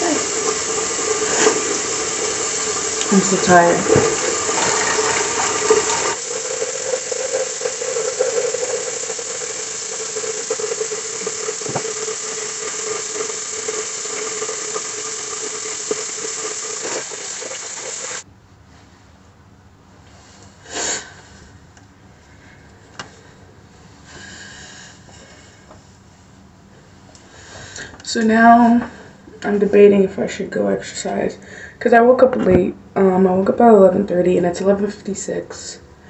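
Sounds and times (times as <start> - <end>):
tap water running into sink: 0.0 - 18.2.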